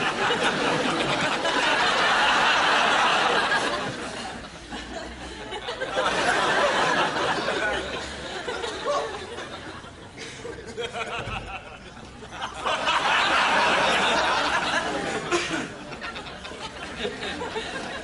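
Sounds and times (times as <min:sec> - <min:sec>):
audience laughter: 0:00.0 - 0:18.0.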